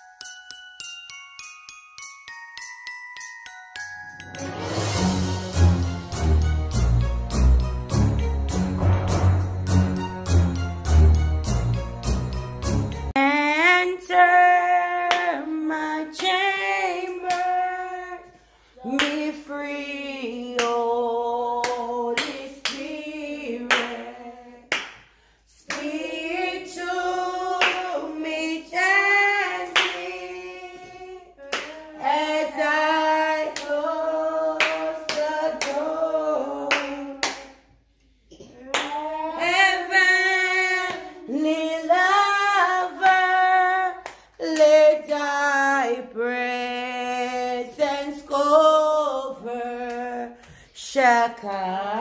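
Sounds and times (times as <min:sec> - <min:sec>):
instrumental tune: 0:00.0 - 0:13.2
person singing worship song: 0:13.1 - 0:52.0
hands clapping steady beat: 0:15.1 - 0:15.4, 0:16.2 - 0:17.6, 0:18.9 - 0:19.3, 0:20.4 - 0:20.8, 0:21.6 - 0:22.9, 0:23.6 - 0:24.1, 0:24.7 - 0:26.2, 0:26.8 - 0:28.1, 0:29.6 - 0:30.2, 0:31.4 - 0:32.0, 0:33.4 - 0:33.9, 0:34.6 - 0:35.9, 0:36.5 - 0:37.8, 0:40.8 - 0:41.1, 0:43.0 - 0:45.2.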